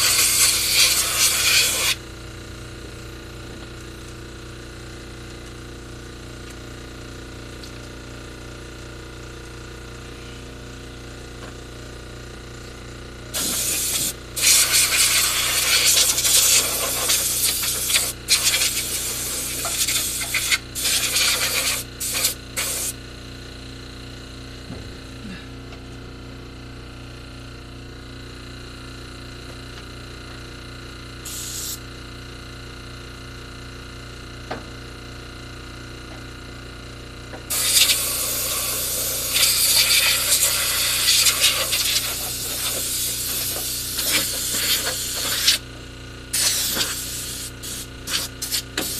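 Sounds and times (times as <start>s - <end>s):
air blower blasting: 0.0s - 2.0s, 13.3s - 23.0s, 31.2s - 31.8s, 37.5s - 45.7s, 46.3s - 48.9s
steady low hum: 8.7s - 27.7s.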